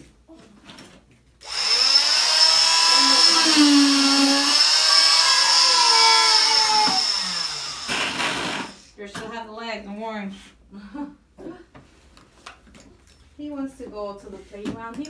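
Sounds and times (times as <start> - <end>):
cast saw whining: 1.4 - 8.8.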